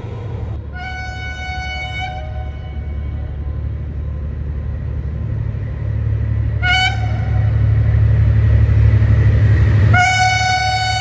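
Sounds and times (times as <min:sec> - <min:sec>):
diesel locomotive engine rumble: 0:00.0 - 0:11.0
locomotive horn toot: 0:00.7 - 0:03.2, 0:06.6 - 0:07.6, 0:09.9 - 0:11.0.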